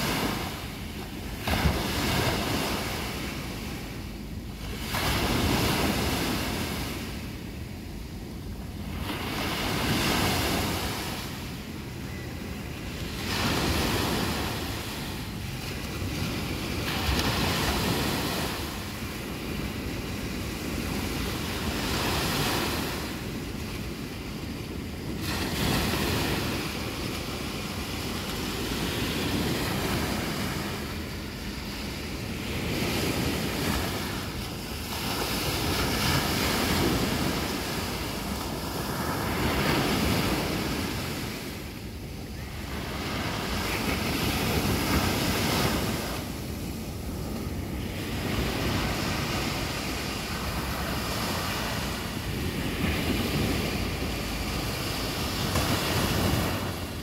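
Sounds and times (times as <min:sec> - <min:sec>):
waves breaking on a beach: 0:00.0 - 0:57.0
wind rumble on microphone: 0:00.0 - 0:57.0.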